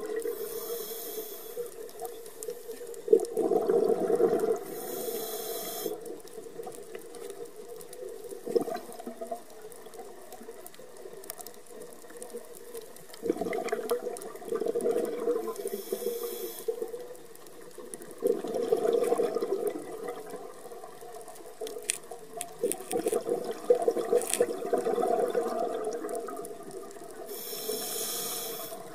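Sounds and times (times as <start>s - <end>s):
regulator hissing inhale: 0.2s - 1.8s, 4.6s - 6.1s, 15.6s - 16.8s, 27.3s - 28.9s
bubbling underwater exhales: 3.2s - 5.2s, 13.2s - 16.2s, 18.2s - 20.6s, 23.1s - 28.9s.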